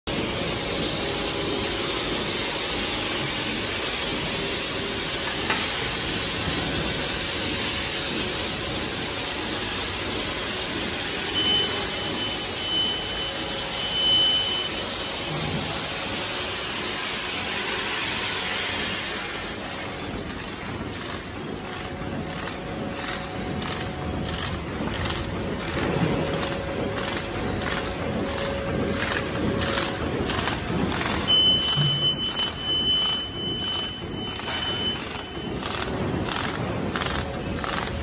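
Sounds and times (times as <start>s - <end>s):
bag-making machine hissing: 0.1s - 38.0s.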